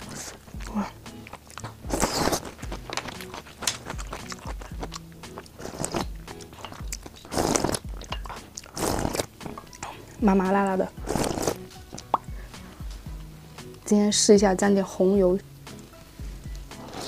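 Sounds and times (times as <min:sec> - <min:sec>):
chewing and mouth clicks: 0:00.0 - 0:10.2, 0:11.0 - 0:12.4
music with steady beat: 0:00.0 - 0:17.0
crunchy bites of food: 0:00.1 - 0:09.9.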